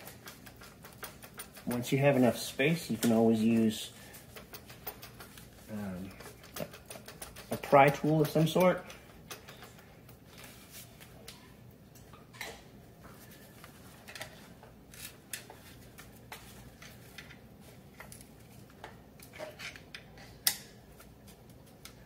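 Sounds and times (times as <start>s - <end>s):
metal clicks and knocks: 6.1s - 10.2s.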